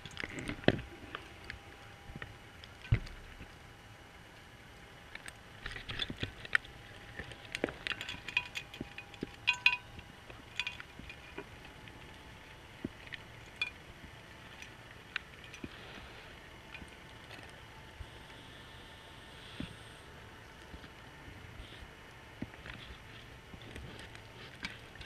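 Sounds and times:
faint steady whine: 0:00.0 - 0:25.0
diving equipment clicking underwater: 0:05.2 - 0:11.8.

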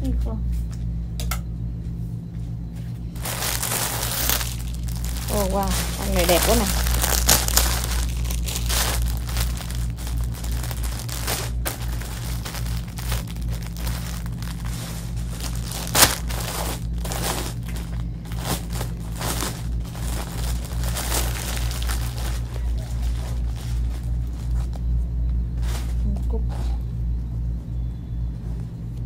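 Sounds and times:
steady low hum: 0:00.0 - 0:29.0
plastic bags crinkling: 0:03.2 - 0:24.9.

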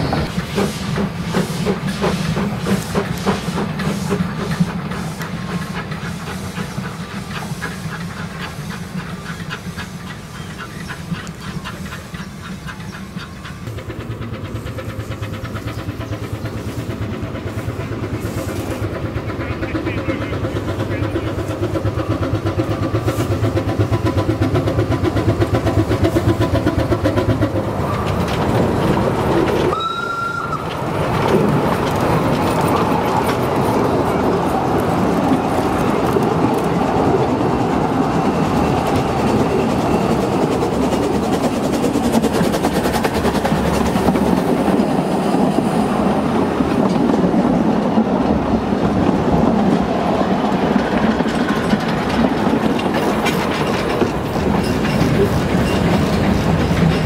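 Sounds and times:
steam locomotive working: 0:00.0 - 0:57.0
wheels rumbling on rails: 0:00.0 - 0:57.0
steam whistle blast: 0:29.7 - 0:30.6.

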